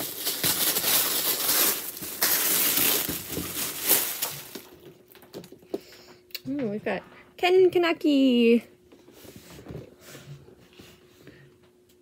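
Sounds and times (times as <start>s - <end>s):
packaging wrap crinkling: 0.0s - 5.6s.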